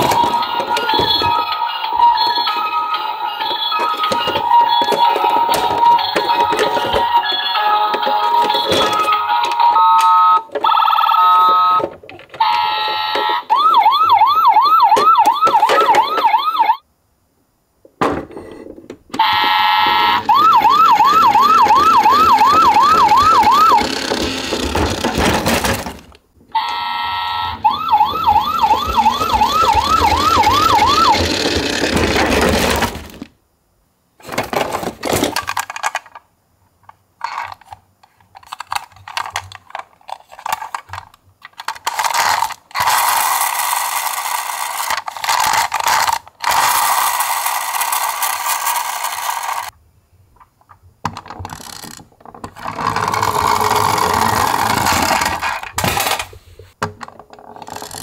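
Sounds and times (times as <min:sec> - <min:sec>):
clattery mechanical noise: 0:00.0 - 0:16.7, 0:18.0 - 0:33.3, 0:37.3 - 0:49.8, 0:50.7 - 0:58.0
toy electronic siren sweeping: 0:12.4 - 0:16.8, 0:19.2 - 0:24.7, 0:26.5 - 0:32.1, 0:46.5 - 0:49.7.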